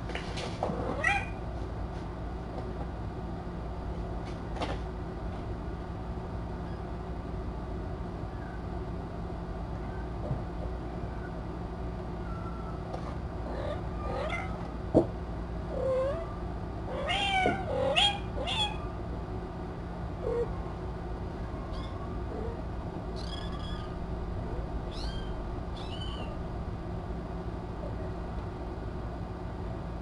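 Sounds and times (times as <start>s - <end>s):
steady low hum: 0.0s - 30.0s
kittens mewing: 0.8s - 1.4s, 13.4s - 14.6s, 15.7s - 19.0s, 24.8s - 26.4s.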